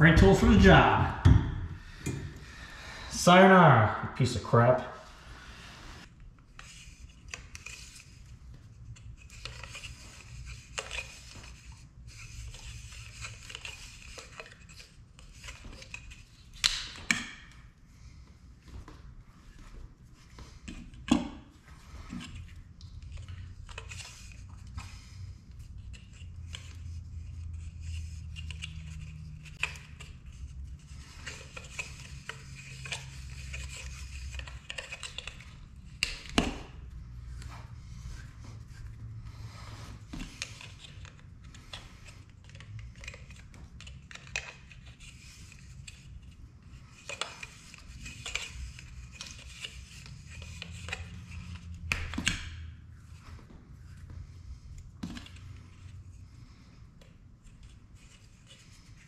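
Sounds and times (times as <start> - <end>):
hands rubbing tape on fittings: 5.0 - 17.6, 18.6 - 52.4.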